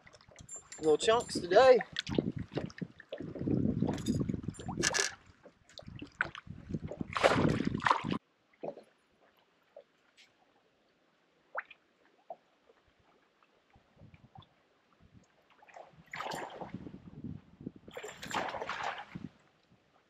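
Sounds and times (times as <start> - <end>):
water slapping against boat hull: 1.8 - 8.2, 15.7 - 17.0, 17.9 - 19.3.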